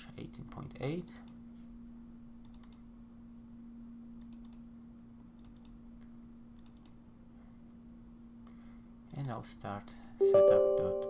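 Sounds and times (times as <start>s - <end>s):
low electrical hum: 0.0s - 11.0s
computer mouse double-clicks: 2.4s - 2.8s, 4.2s - 4.6s, 5.4s - 5.8s, 6.6s - 7.0s.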